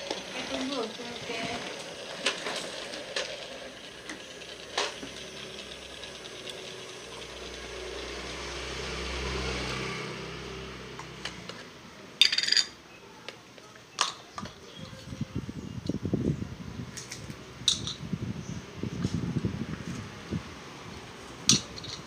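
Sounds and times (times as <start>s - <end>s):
toy blender motor whirring: 0.0s - 9.0s.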